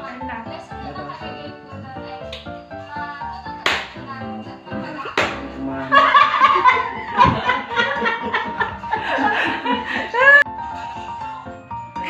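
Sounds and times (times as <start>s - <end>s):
people laughing hard: 5.6s - 10.5s.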